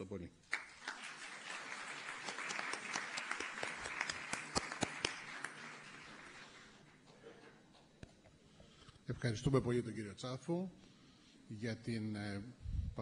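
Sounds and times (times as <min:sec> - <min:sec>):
audience applauding: 0:00.5 - 0:07.2.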